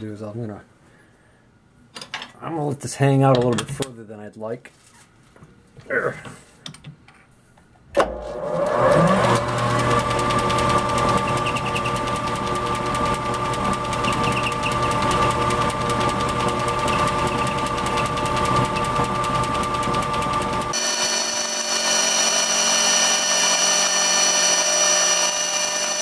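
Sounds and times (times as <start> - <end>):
metal lathe running: 8.5 - 26.0.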